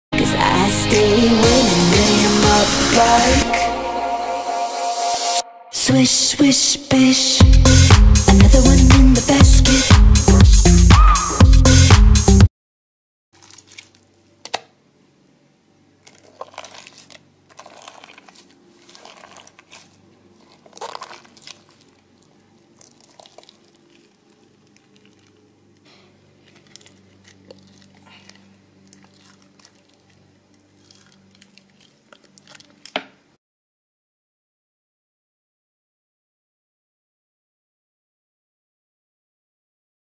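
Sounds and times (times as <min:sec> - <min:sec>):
slime squishing and popping: 0:13.4 - 0:14.7, 0:16.0 - 0:25.4, 0:26.4 - 0:33.0.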